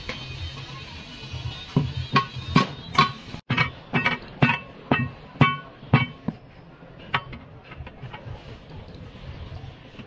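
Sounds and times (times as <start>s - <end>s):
hammer striking metal: 1.8s - 6.3s.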